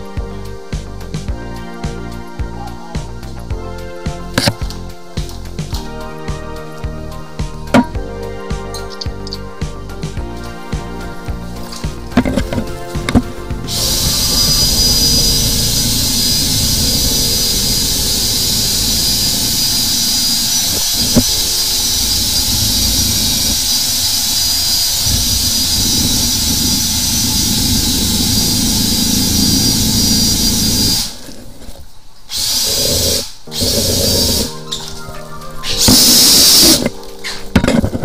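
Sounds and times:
drain-cleaning machine motor: 0:11.8 - 0:31.2, 0:32.4 - 0:34.6, 0:35.6 - 0:36.9.

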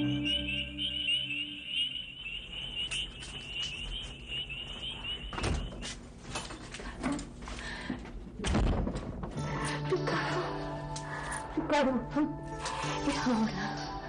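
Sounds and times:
night insects chirring: 0:00.0 - 0:05.9
knocks and thuds: 0:08.4 - 0:09.4.

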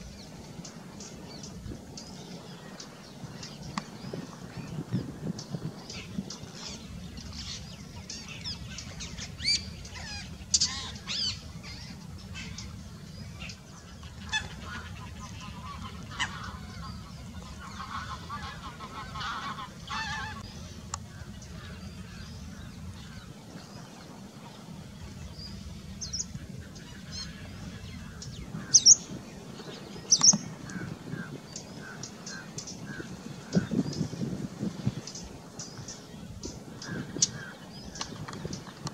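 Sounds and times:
bird chirps and calls: 0:28.2 - 0:29.1.

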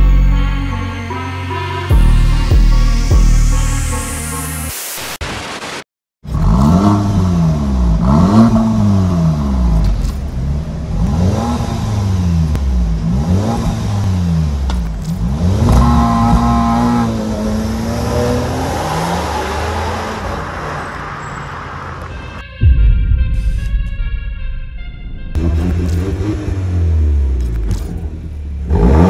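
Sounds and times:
car engine revving: 0:06.3 - 0:22.1, 0:25.1 - 0:29.0.

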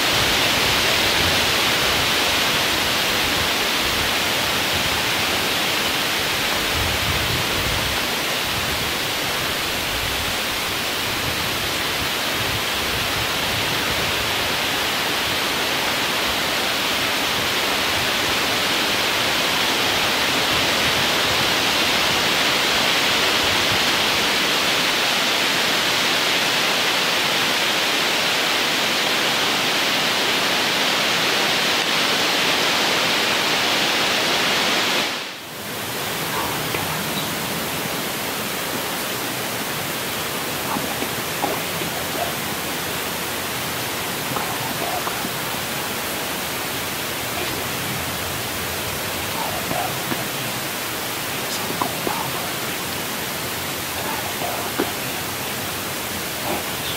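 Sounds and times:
wind gusts rumbling on microphone: 0:00.0 - 0:24.4, 0:35.5 - 0:56.9
wind hissing through woods: 0:00.0 - 0:56.9.

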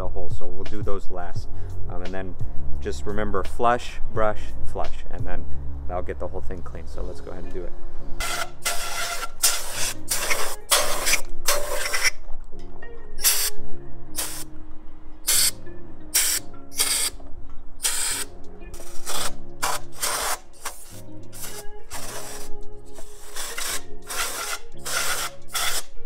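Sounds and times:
background music: 0:00.0 - 0:26.0
compressed air spray bursts: 0:08.3 - 0:12.1, 0:13.2 - 0:13.6, 0:14.2 - 0:14.5, 0:15.3 - 0:15.6, 0:16.2 - 0:17.1, 0:17.8 - 0:18.2, 0:18.8 - 0:22.5.

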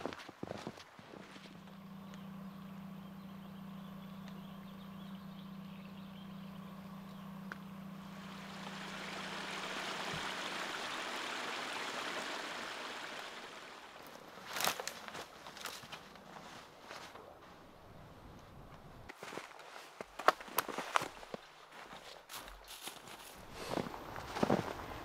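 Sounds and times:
low steady hum: 0:00.4 - 0:19.1
running water rushing: 0:08.0 - 0:14.2.

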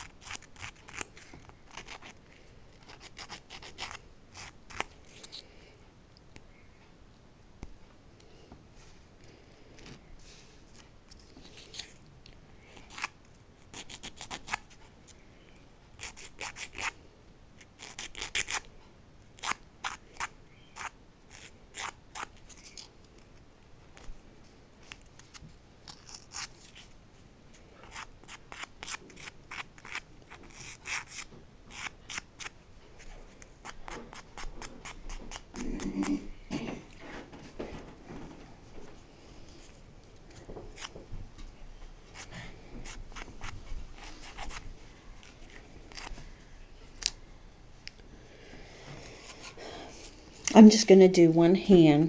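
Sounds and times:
nail file rasping: 0:00.0 - 0:05.4, 0:12.8 - 0:14.8, 0:16.0 - 0:17.0, 0:17.7 - 0:18.7, 0:19.4 - 0:22.6, 0:27.8 - 0:36.1, 0:42.1 - 0:44.6.

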